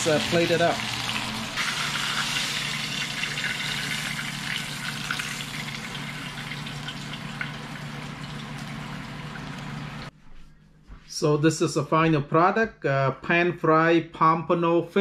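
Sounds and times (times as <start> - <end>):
oil sizzling and crackling: 0.0 - 10.1.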